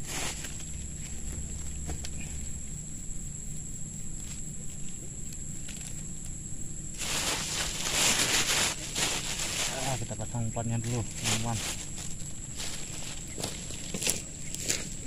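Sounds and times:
plastic bag rustling: 0:07.0 - 0:14.9.

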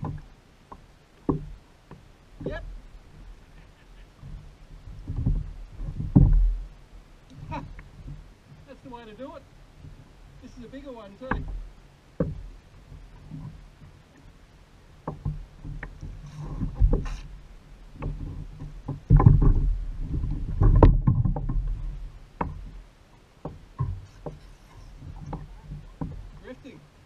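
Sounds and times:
fishing gear knocking on kayak hull: 0:00.0 - 0:03.3, 0:04.2 - 0:06.7, 0:11.2 - 0:14.3, 0:17.9 - 0:22.8, 0:23.4 - 0:26.5
low thumping and rumble: 0:00.0 - 0:27.0.

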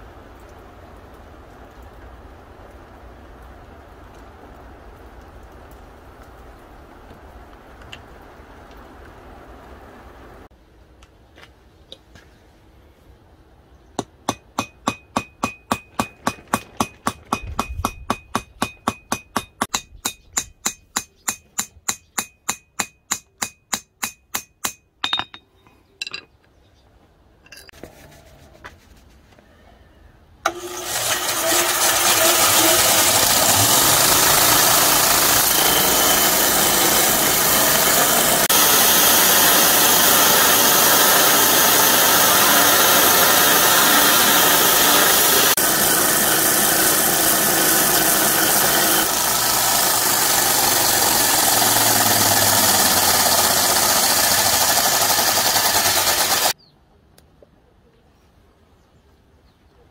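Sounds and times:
belt grinder grinding blade: 0:30.5 - 0:56.6.

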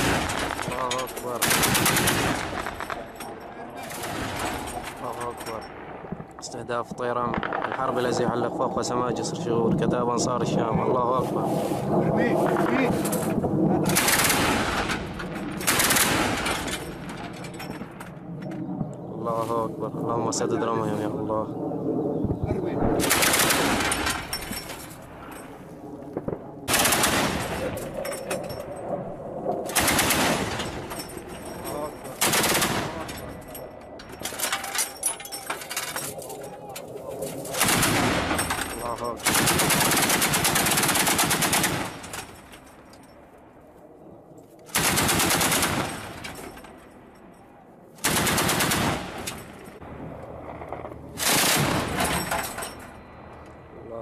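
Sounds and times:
autocannon firing burst: 0:00.0 - 0:03.2, 0:13.4 - 0:17.3, 0:23.0 - 0:24.3, 0:26.2 - 0:28.0, 0:29.7 - 0:31.3, 0:37.5 - 0:42.4, 0:48.0 - 0:49.6, 0:51.2 - 0:52.4
gunfire echo rolling: 0:00.0 - 0:21.2, 0:22.2 - 0:43.6, 0:44.7 - 0:53.3.

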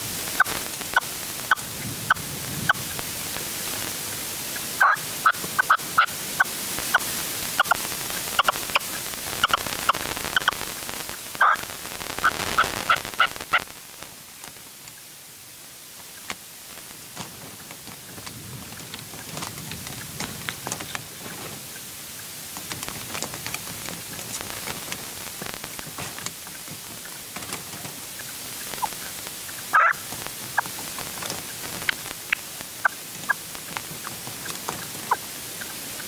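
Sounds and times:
partridge clicking calls: 0:00.0 - 0:15.1, 0:16.0 - 0:36.0
partridge chirping call: 0:28.2 - 0:30.7.

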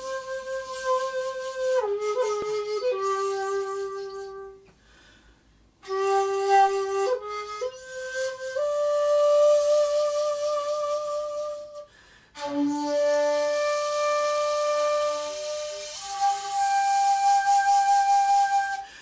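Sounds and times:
solo flute playing slow notes: 0:00.0 - 0:04.7, 0:05.8 - 0:19.0.

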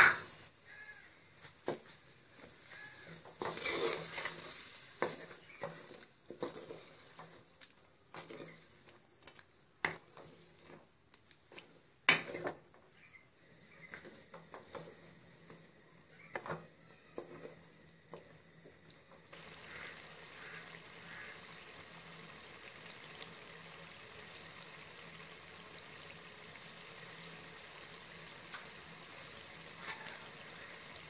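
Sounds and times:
utensil scraping in a pot: 0:01.7 - 0:12.6, 0:13.5 - 0:15.7, 0:17.1 - 0:17.8.

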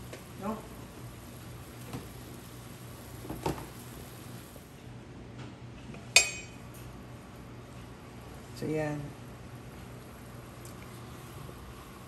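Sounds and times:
sauce simmering in wok: 0:00.0 - 0:04.8, 0:09.2 - 0:12.0
gas burner hum and hiss: 0:00.0 - 0:12.0.

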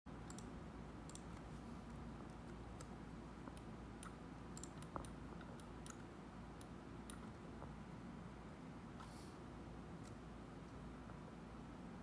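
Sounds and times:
low steady hum: 0:00.1 - 0:12.0
computer mouse clicks: 0:00.2 - 0:00.5, 0:01.1 - 0:01.5, 0:02.3 - 0:07.4.

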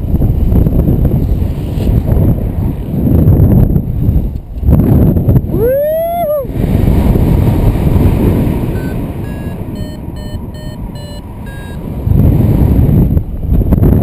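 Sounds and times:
wind noise on microphone: 0:00.0 - 0:14.0
variometer beeping: 0:08.7 - 0:11.9.

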